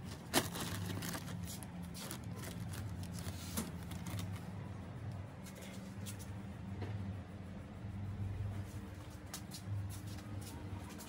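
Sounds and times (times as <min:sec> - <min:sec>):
plastic film crinkling: 0:00.0 - 0:04.5
steady low hum: 0:00.0 - 0:11.0.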